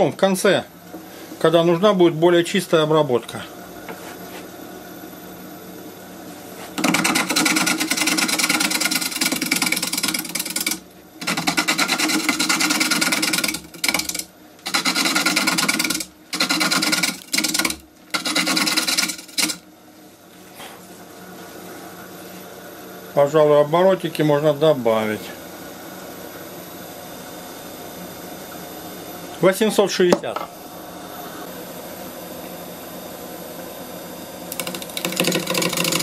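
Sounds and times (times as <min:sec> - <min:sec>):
gouge scraping spinning wood: 0:06.6 - 0:19.6, 0:34.5 - 0:36.0
wood lathe running: 0:06.8 - 0:19.6, 0:34.5 - 0:36.0.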